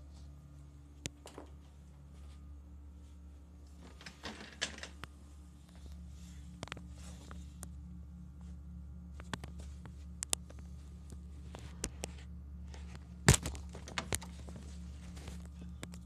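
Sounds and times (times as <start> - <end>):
steady low hum: 0.0 - 16.0
phone handling clicks and rustles: 9.2 - 16.0.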